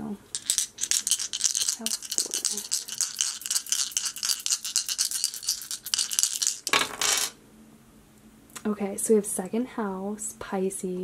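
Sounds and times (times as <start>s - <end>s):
dice clattering when cast: 0.3s - 7.4s
dice rattling: 0.3s - 7.4s.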